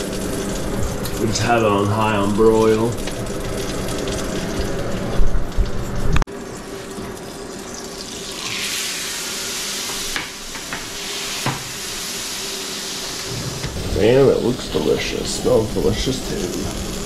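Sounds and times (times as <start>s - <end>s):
fish sizzling on pan: 0.0s - 17.0s
rough low rumbling and knocking: 13.3s - 14.8s.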